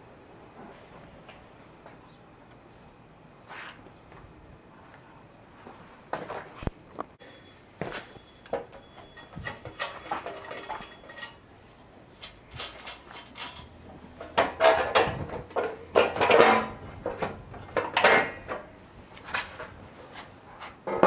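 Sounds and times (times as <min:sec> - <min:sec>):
metal cover clanking and rattling: 0:08.6 - 0:11.4, 0:12.2 - 0:18.7.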